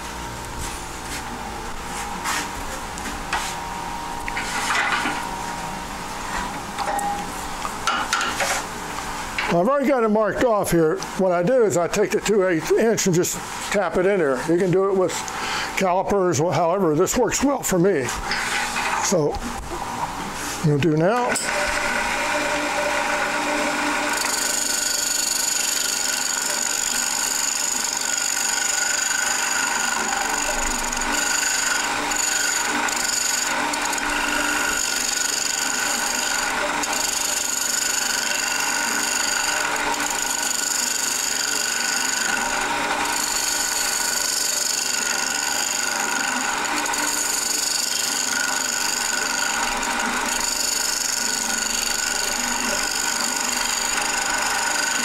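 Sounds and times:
turning tool scraping wood: 18.0 - 19.2, 20.3 - 55.0
wood lathe whine: 21.0 - 55.0.

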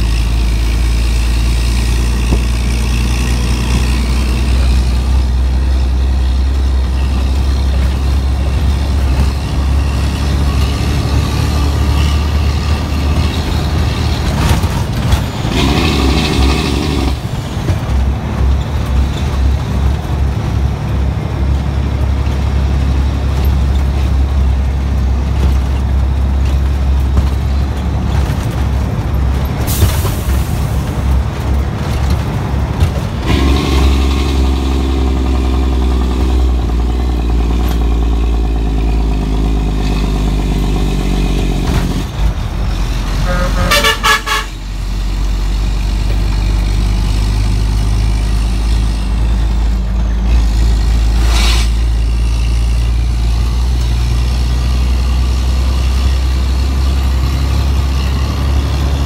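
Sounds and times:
truck diesel engine running: 0.0 - 59.0
truck horn toot: 43.1 - 44.7.

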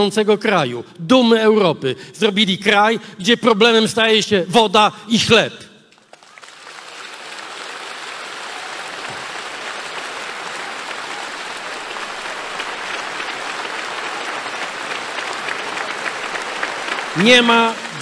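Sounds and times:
crowd applauding: 6.0 - 18.0.

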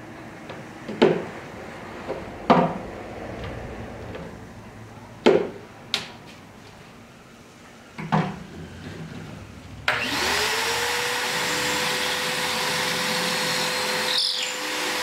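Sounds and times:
shop vacuum whine: 8.4 - 15.0.

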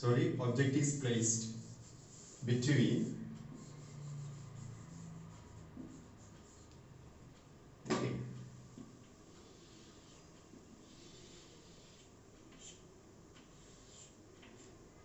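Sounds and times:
faint rubbing and handling: 1.4 - 6.8, 8.7 - 15.0
sharp knock: 7.9 - 8.3.

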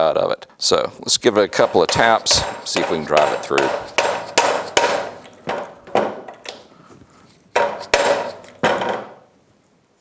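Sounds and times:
mallet striking metal socket: 1.6 - 6.6, 7.6 - 9.1.

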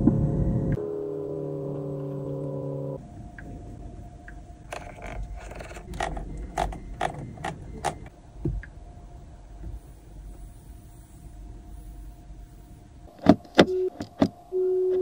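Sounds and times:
faint steady hum: 0.0 - 15.0
car control clicks: 4.7 - 8.7.

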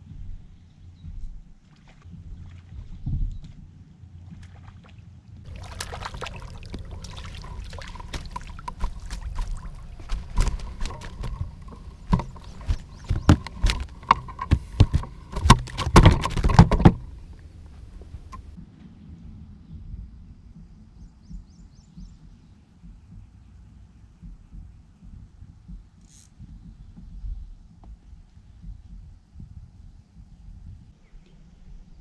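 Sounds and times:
water splashing in landing net: 4.4 - 18.5
net knocking and rattling: 5.5 - 18.5.

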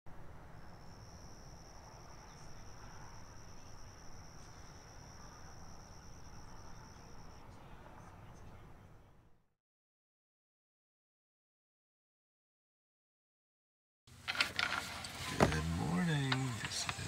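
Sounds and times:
insects trilling: 0.2 - 8.5.

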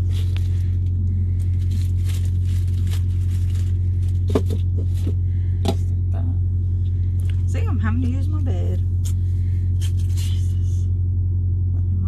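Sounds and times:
wrapper rustling and crinkling: 0.0 - 5.4, 9.0 - 10.5
low drone in truck cab: 0.0 - 12.0.

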